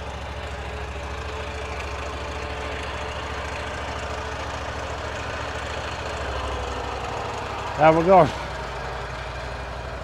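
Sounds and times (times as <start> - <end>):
mower engine running: 0.0 - 10.0.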